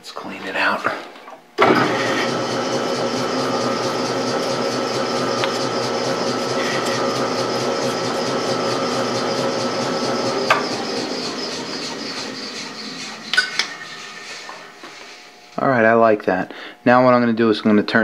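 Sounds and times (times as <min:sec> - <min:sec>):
lathe whining: 0:01.6 - 0:15.6.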